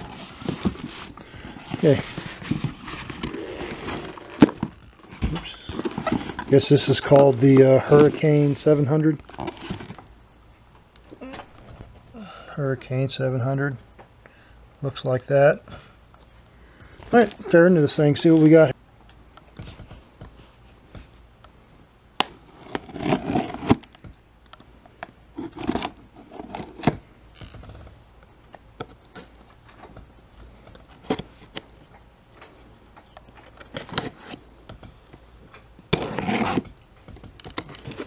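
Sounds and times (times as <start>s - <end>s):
cardboard box scraping and rustling: 0.0s - 4.7s, 22.5s - 23.8s, 35.9s - 36.6s.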